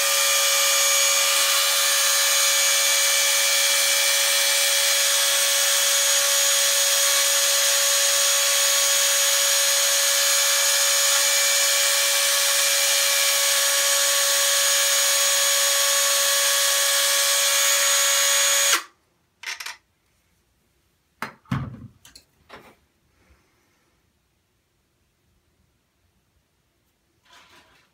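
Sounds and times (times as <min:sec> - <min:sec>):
rotary tool whining: 0:00.0 - 0:19.7.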